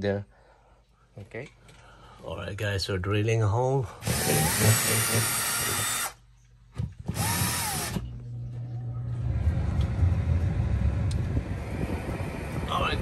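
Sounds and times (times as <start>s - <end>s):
drill with hole saw cutting: 4.0s - 6.2s, 7.1s - 8.1s
low steady rumble: 7.6s - 13.0s.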